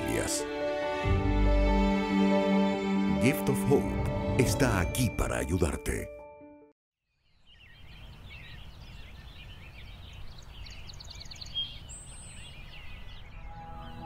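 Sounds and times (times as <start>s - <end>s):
birds chirping: 7.1s - 14.0s.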